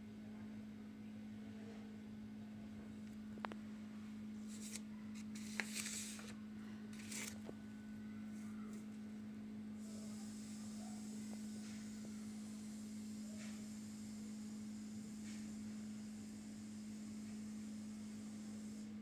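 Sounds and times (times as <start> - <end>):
steady low hum: 0.0 - 19.0
paper rustling: 4.4 - 7.4.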